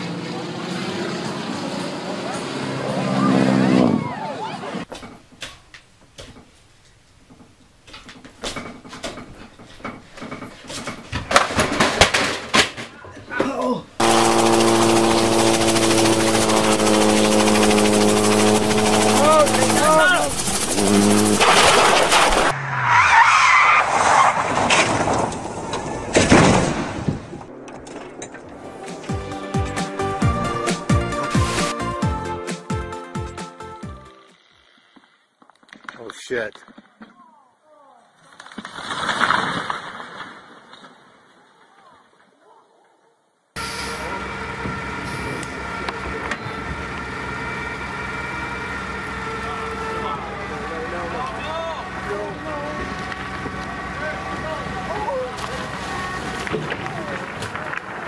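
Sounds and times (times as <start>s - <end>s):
large engine idling: 14.0s - 21.4s, 43.6s - 57.0s
loud noisy burst: 14.0s - 22.6s.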